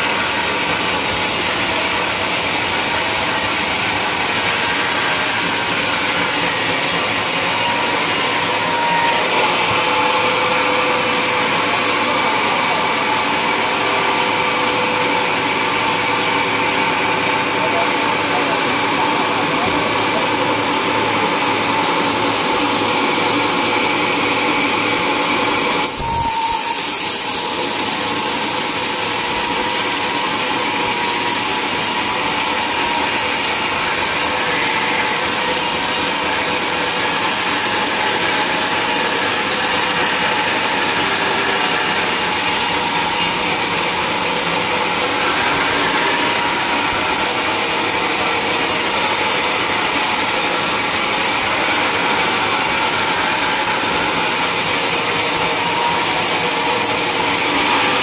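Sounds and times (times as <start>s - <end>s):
sawmill blade cutting log: 0.0s - 58.0s.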